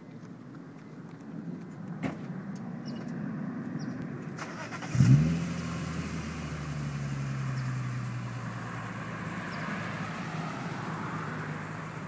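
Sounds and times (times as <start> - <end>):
car engine starting and idling: 4.3 - 12.0.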